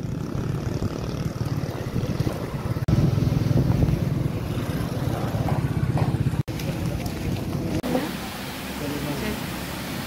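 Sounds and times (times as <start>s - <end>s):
wind on microphone: 0.0s - 6.3s
street noise rumble: 0.0s - 10.0s.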